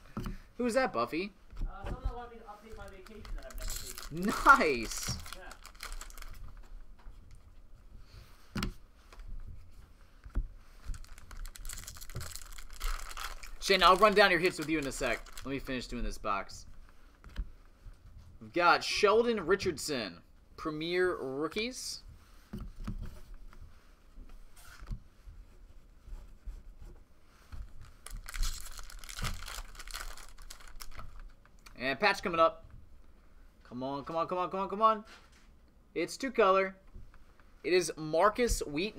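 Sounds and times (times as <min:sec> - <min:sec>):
cards rustling: 0:02.6 - 0:07.4, 0:10.7 - 0:16.0, 0:27.6 - 0:31.3
foil pack crinkling and tearing: 0:02.8 - 0:06.4, 0:10.9 - 0:15.5, 0:27.9 - 0:31.2.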